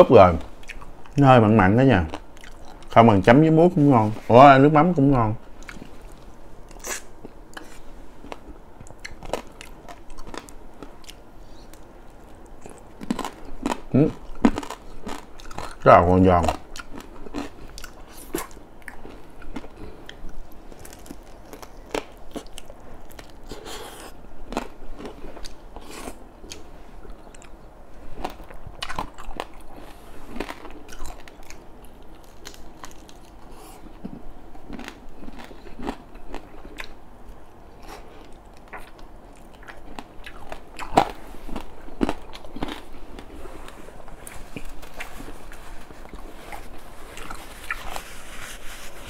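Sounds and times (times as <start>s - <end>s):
chewing and crunching fried fish: 2.0s - 3.0s, 5.6s - 43.4s.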